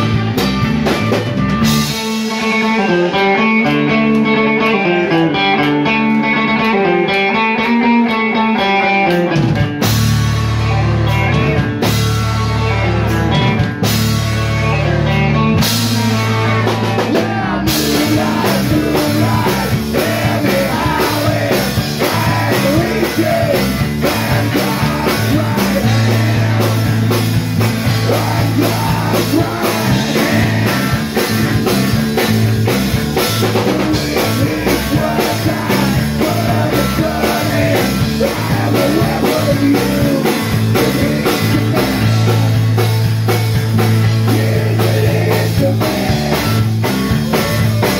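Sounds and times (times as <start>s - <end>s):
drum kit: 0.0s - 47.9s
electric guitars: 0.0s - 47.9s
man singing: 16.0s - 31.6s, 33.4s - 42.6s, 44.1s - 46.7s.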